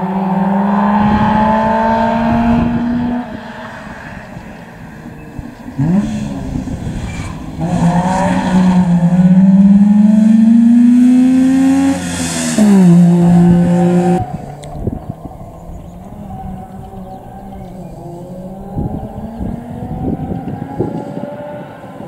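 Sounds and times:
two-stroke rally car engine accelerating: 0.0 - 3.6, 4.2 - 22.0.

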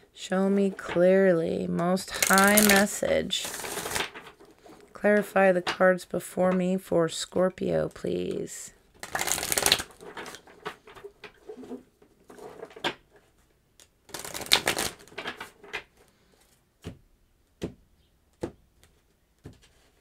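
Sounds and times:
cards shuffling: 2.1 - 4.8, 9.0 - 12.9, 13.8 - 15.9.

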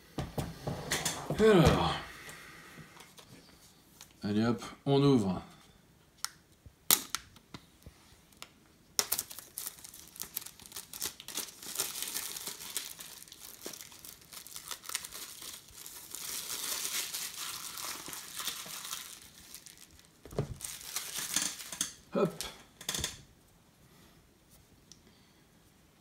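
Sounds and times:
packaging wrap crinkling and tearing: 9.0 - 22.0.

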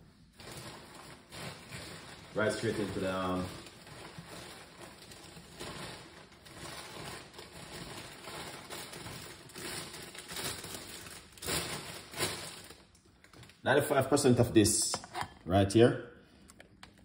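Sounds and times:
soft crinkling and rustling: 0.2 - 13.6.

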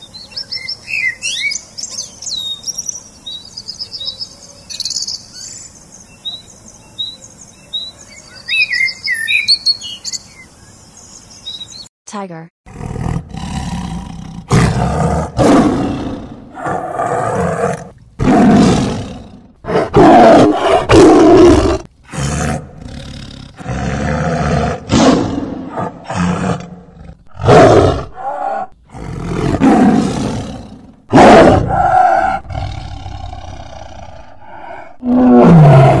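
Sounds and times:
tiger roaring and growling: 12.7 - 36.0.

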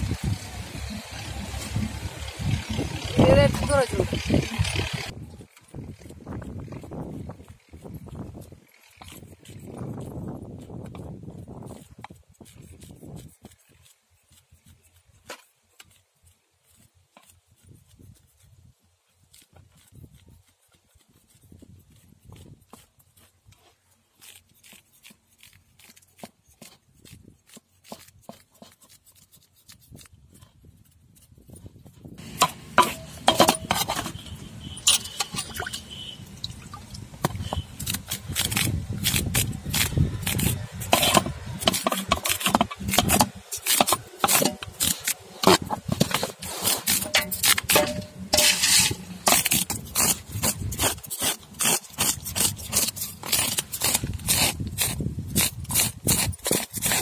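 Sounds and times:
knife scraping fish scales: 19.2 - 31.4, 32.2 - 57.0.

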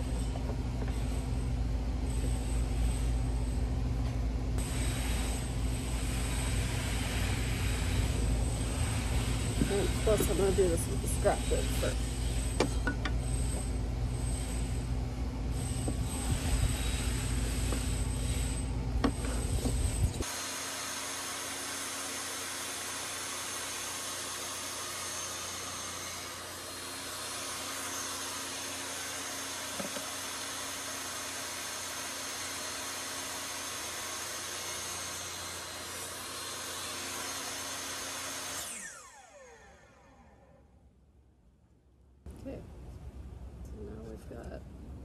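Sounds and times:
table saw cutting wood: 4.6 - 12.7, 20.2 - 40.4
saw blade spinning down: 20.2 - 40.6.

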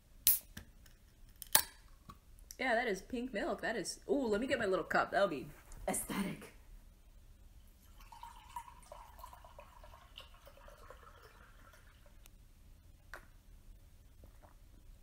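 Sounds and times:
milk trickling into a cup: 7.7 - 12.2.

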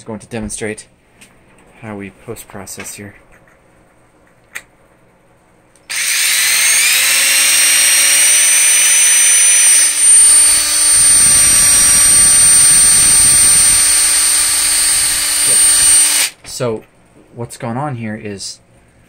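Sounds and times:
cordless drill motor whine: 5.9 - 16.4.

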